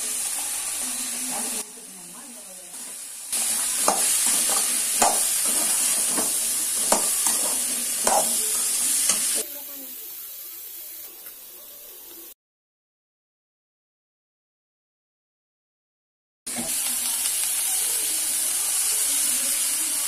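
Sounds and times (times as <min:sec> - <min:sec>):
food sizzling in a pan: 0:00.0 - 0:12.4, 0:16.5 - 0:20.0
spoon scraping a steel pan: 0:03.5 - 0:09.4.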